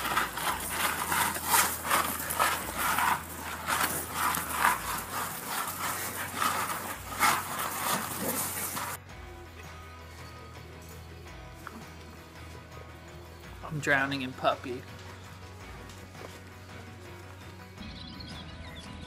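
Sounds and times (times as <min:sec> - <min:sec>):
scuffling on gravel: 0:00.0 - 0:09.0.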